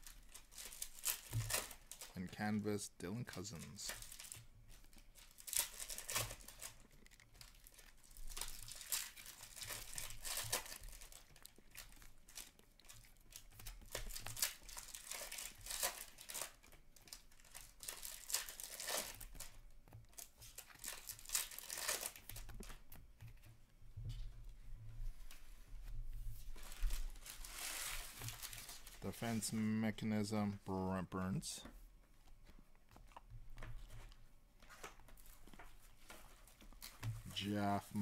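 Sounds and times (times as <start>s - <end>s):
foil wrappers crinkling and tearing: 0.0s - 22.9s, 26.4s - 29.6s, 34.6s - 38.0s.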